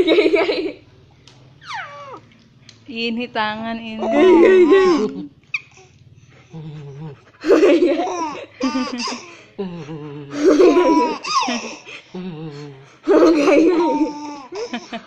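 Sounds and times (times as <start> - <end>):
baby giggling: 1.6 - 2.2, 4.0 - 5.9, 7.4 - 9.3, 10.3 - 11.9, 13.1 - 14.9.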